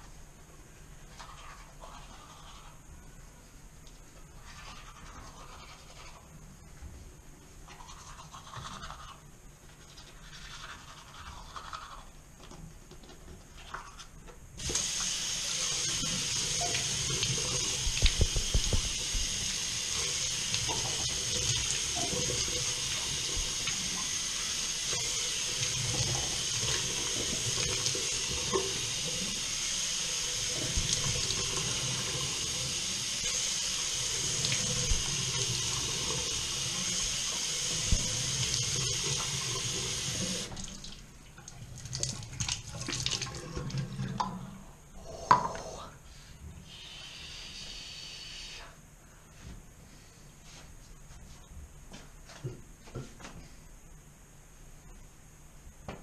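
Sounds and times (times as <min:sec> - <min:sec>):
toothbrush scrubbing teeth: 0:01.1 - 0:02.8, 0:04.4 - 0:06.3, 0:07.7 - 0:12.1
tap water running into sink: 0:14.6 - 0:44.3.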